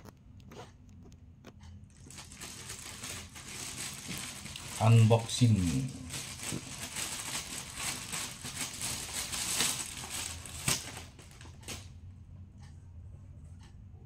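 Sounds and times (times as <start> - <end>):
plastic mailer bag crinkling: 1.9 - 11.8.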